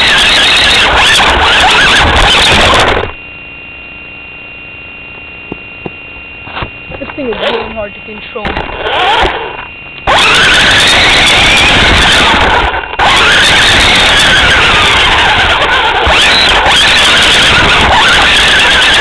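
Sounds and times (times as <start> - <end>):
toy car motor whining: 0.0 - 3.1, 7.0 - 19.0.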